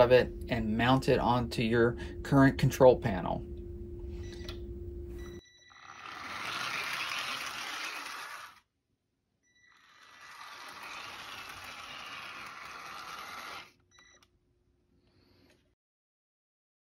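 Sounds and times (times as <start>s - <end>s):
model streetcar motor whirring: 5.7s - 8.6s, 9.6s - 13.7s.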